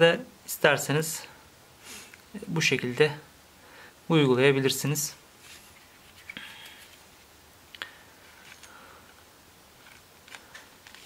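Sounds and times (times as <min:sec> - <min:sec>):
soft handling rustle: 0:05.3 - 0:07.3.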